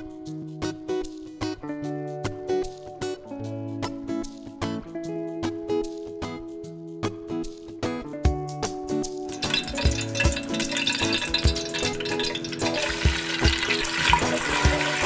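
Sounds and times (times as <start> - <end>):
background music: 0.0 - 15.0
onions sizzling in hot oil: 9.3 - 15.0
wooden spoon stirring: 9.4 - 14.9.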